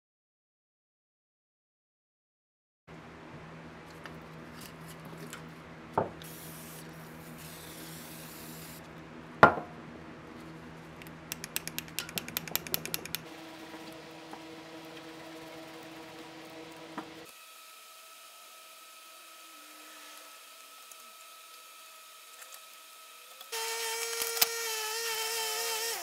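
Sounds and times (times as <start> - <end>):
low hum: 2.9 - 17.3
small metal clicks: 11.0 - 13.3
pliers knocking: 11.3 - 13.3.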